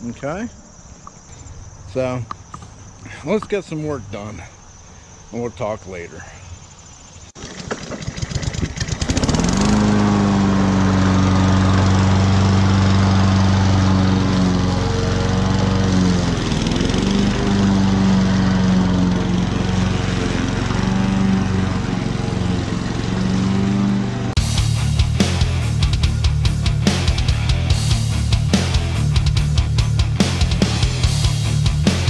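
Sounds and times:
push mower engine running: 7.4s - 24.5s
rock music: 10.4s - 32.0s.

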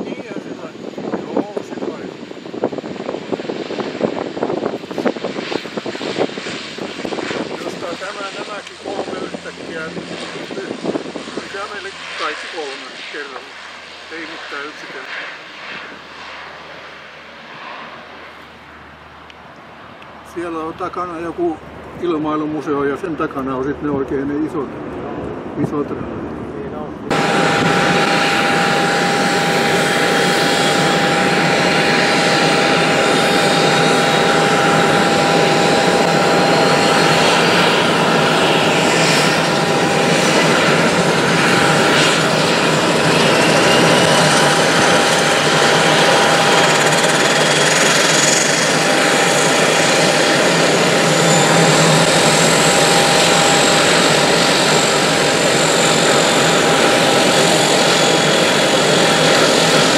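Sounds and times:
high turbine whine: 0.0s - 59.9s
propeller drone: 0.0s - 59.9s.

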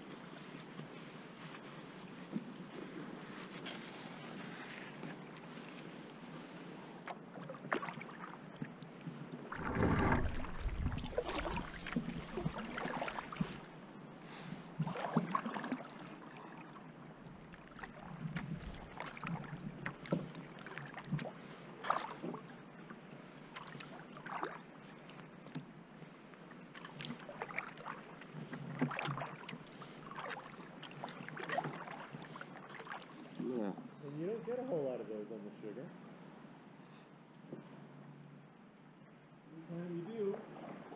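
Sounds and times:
paddle splashing in water: 7.1s - 8.6s, 9.4s - 13.8s, 14.8s - 22.5s, 23.5s - 24.7s, 26.7s - 33.3s, 40.3s - 40.9s
hiss of moving water: 8.8s - 34.5s
low rumble: 9.5s - 13.2s.

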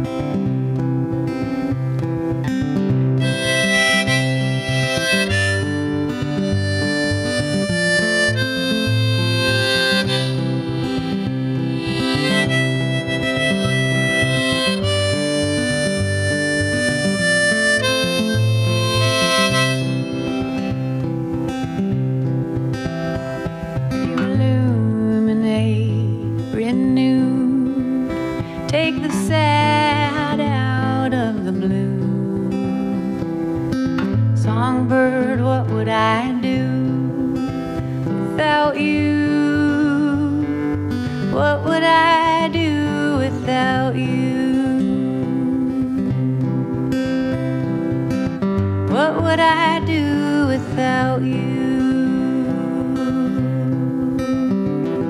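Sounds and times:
acoustic guitar accompaniment: 0.0s - 55.0s
harmonica solo: 3.2s - 21.2s
sliding held melody line: 3.2s - 21.5s.

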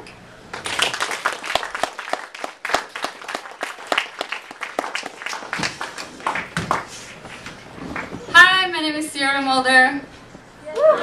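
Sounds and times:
audience applauding: 0.5s - 8.2s.

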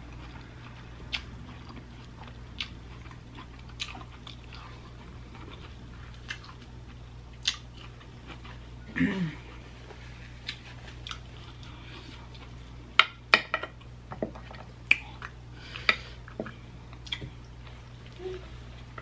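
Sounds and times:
chewing and mouth smacks: 0.1s - 8.6s, 10.4s - 12.6s, 16.9s - 18.2s.

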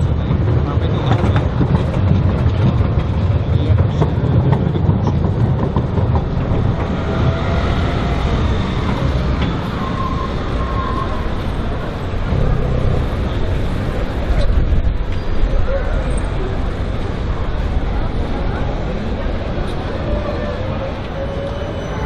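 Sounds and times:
tram wheels rumbling on rail: 0.0s - 22.0s
wheels squealing: 4.9s - 22.0s.

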